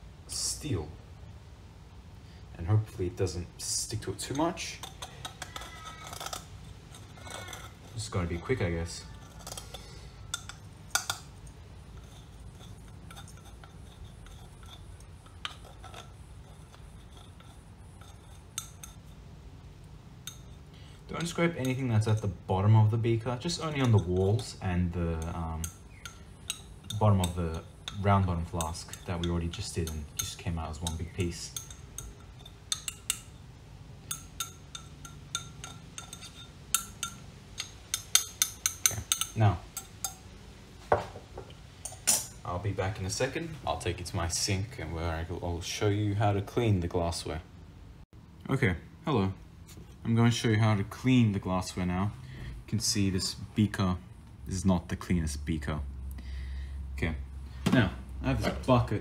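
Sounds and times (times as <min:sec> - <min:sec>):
spatula scraping glass beaker: 0:04.0 - 0:19.2, 0:34.0 - 0:40.2
metal clinking on glass: 0:23.5 - 0:33.4, 0:34.0 - 0:40.3.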